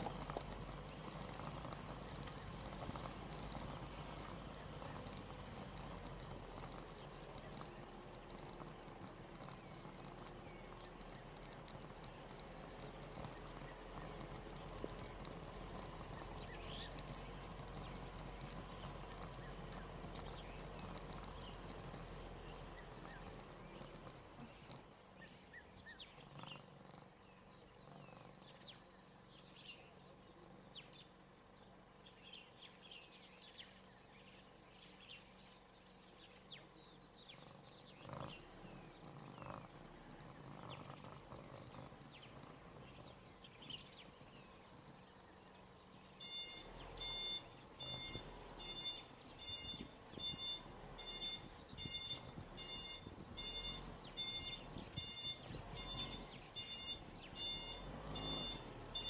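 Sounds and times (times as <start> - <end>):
birds chirping: 0.0 - 59.0
electronic beeping: 46.2 - 59.0.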